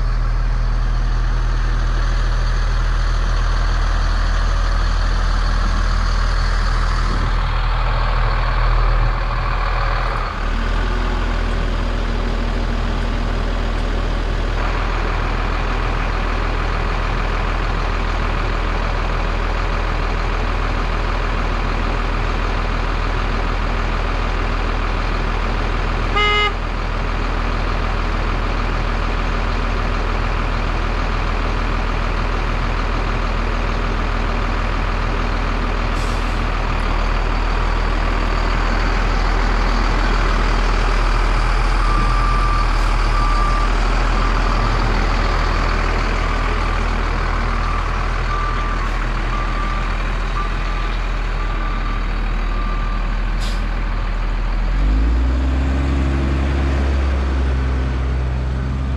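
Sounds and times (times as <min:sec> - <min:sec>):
diesel truck engine idling: 0:00.0 - 0:58.9
truck horn blast: 0:26.1 - 0:26.7.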